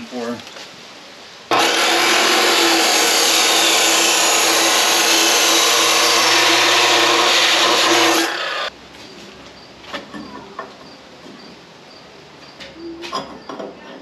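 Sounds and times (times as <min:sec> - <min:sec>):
chop saw cutting metal: 0:01.5 - 0:08.7.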